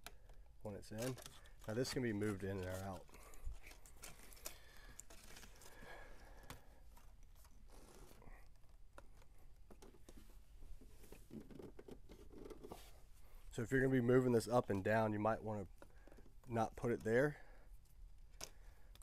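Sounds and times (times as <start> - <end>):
handling clicks scrapes and rustles: 0.8 - 5.8.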